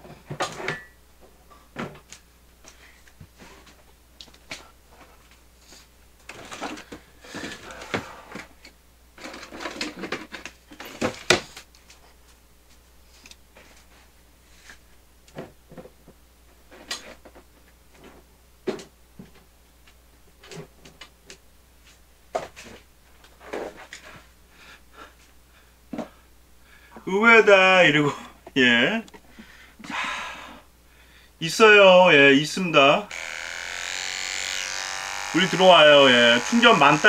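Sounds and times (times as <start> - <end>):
rustling and scraping: 2.6 - 8.4, 9.2 - 18.3, 21.8 - 24.4.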